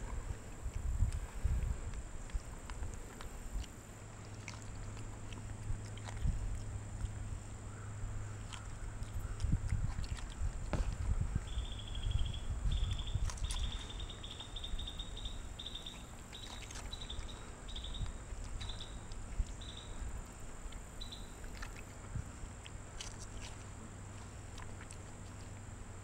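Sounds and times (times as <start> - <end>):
wind rumble on microphone: 0.0 - 24.3
insect chirping: 11.5 - 21.8.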